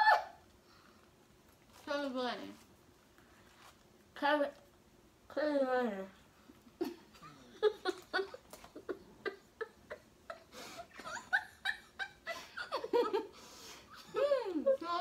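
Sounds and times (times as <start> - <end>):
girls laughing with full mouths: 6.8 - 14.6.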